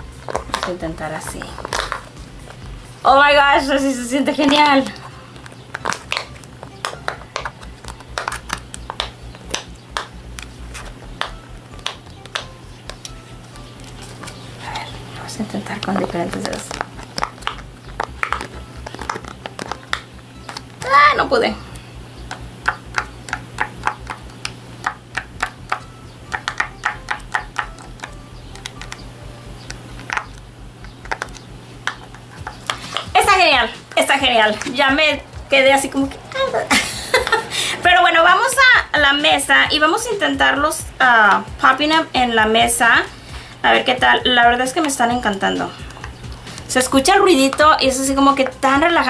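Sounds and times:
pop-it toy bubbles popping: 5.5 - 10.4, 11.2 - 13.2, 15.8 - 20.7, 22.2 - 29.0.

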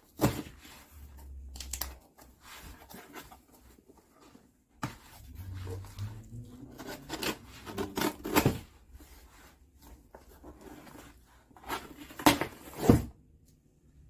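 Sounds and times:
cardboard rubbing and scraping: 2.3 - 13.1.

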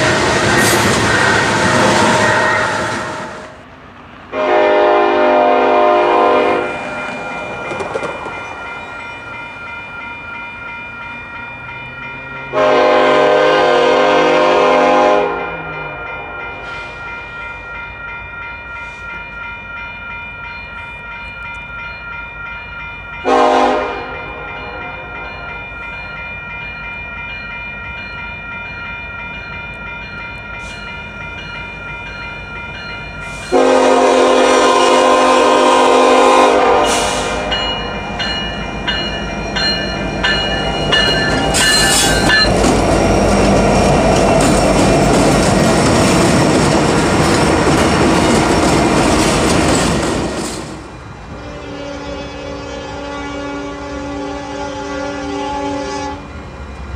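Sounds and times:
locomotive air horn blasts: 1.1 - 3.6, 4.3 - 7.0, 12.5 - 16.0, 23.2 - 25.2, 33.2 - 37.7, 51.4 - 56.3
railroad crossing bell ringing: 4.3 - 50.8.

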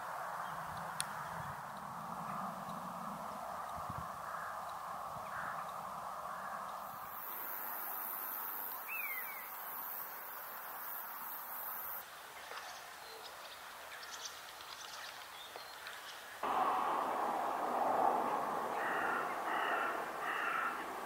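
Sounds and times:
steady background hiss: 0.0 - 21.0
faint bird calls: 0.4 - 9.6, 18.1 - 21.0.

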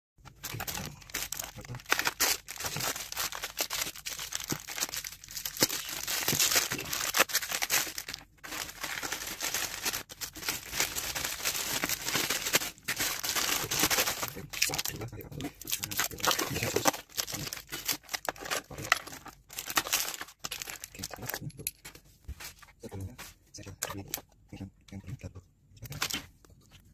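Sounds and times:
plastic bag crinkling: 0.2 - 21.6.

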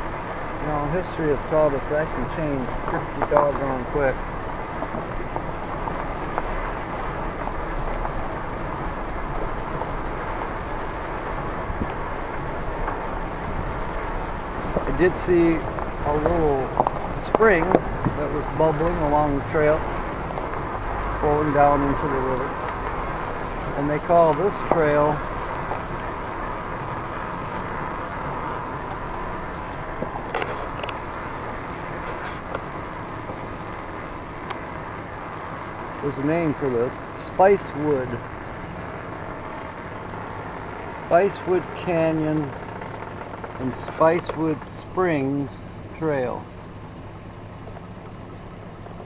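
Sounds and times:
wind buffeting microphone: 0.0 - 46.0
tyres rolling on gravel: 0.0 - 49.0
faint clicks: 22.3 - 45.0.

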